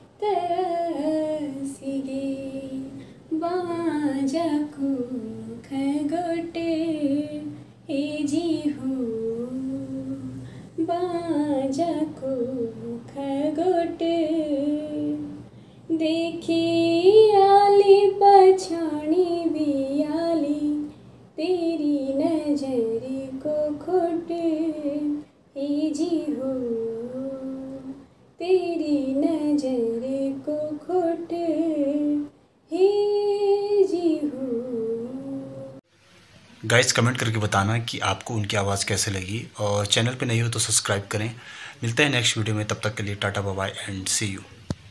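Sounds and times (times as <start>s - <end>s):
woman singing unaccompanied: 0.0s - 35.9s.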